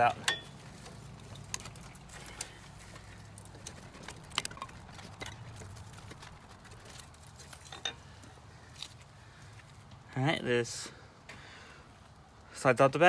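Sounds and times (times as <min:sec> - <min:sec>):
metallic clicks of brake pads: 0:00.2 - 0:09.0.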